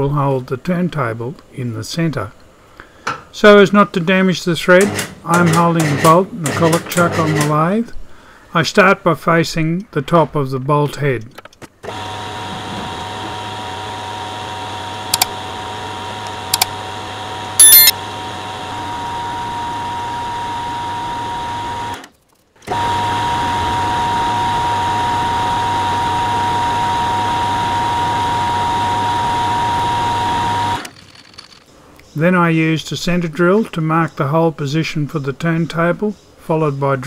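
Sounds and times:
small clicks: 15.1s - 15.3s, 16.2s - 16.7s, 30.8s - 32.1s
bright ringing chime: 17.6s - 17.9s
metal lathe humming and whining: 22.7s - 30.8s.

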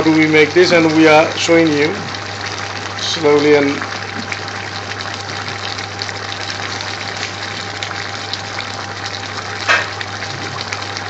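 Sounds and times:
vegetables simmering in oil: 0.0s - 11.0s.

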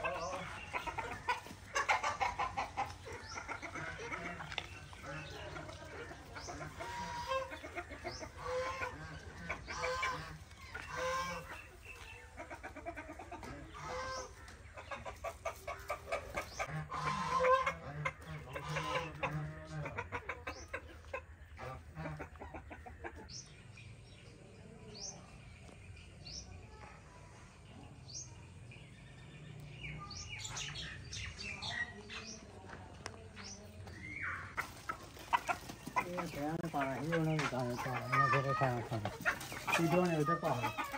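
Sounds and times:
chickens clucking: 0.0s - 40.9s
small birds chirping: 0.0s - 40.9s.

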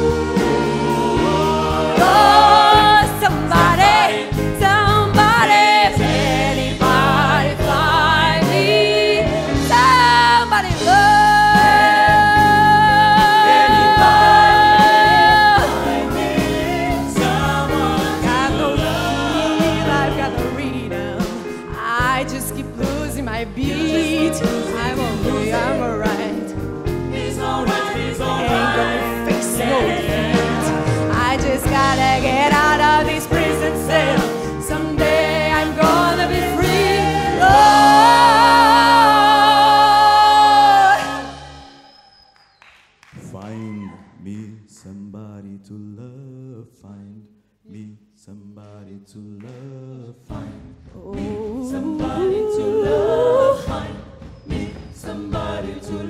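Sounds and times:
backing choir singing: 0.0s - 22.2s, 23.6s - 42.2s, 49.4s - 56.0s
live rock band: 0.0s - 41.7s
woman singing with vibrato: 1.2s - 16.0s, 17.2s - 26.5s, 31.1s - 41.9s, 51.0s - 54.0s.

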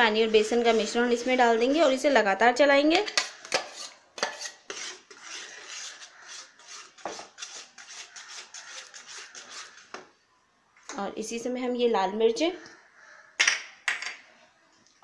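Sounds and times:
metal whisk scraping a pan: 0.0s - 2.2s, 3.0s - 10.1s.

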